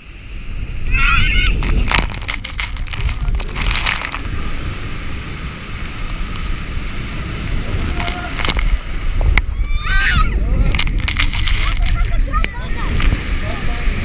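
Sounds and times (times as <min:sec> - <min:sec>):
water rushing and splashing: 0:00.0 - 0:14.0
low rumble: 0:01.4 - 0:13.4
spray crackling against camera: 0:01.5 - 0:09.5, 0:10.6 - 0:13.3.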